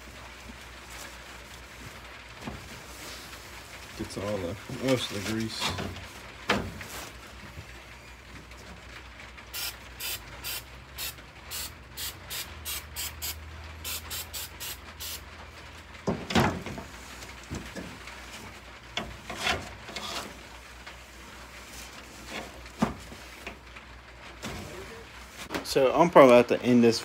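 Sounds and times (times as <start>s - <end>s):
spray bottle hissing sprays: 9.6s - 15.2s.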